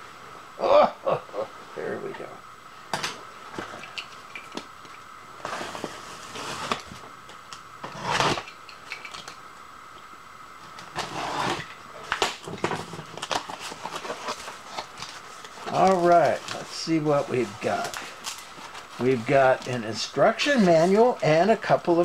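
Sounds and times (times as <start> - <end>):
faint steady hum: 0.0 - 22.0
cardboard rustling: 12.5 - 20.0.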